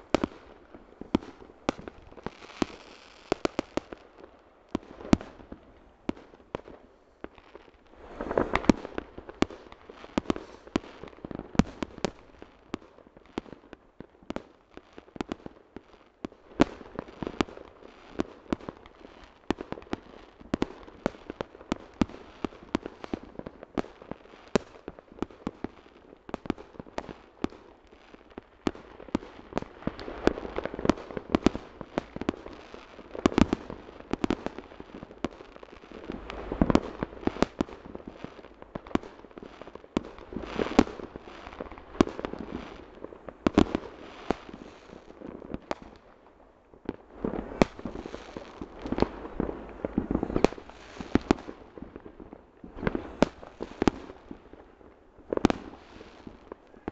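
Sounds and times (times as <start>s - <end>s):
fireworks and firecrackers banging: 0.0s - 56.9s.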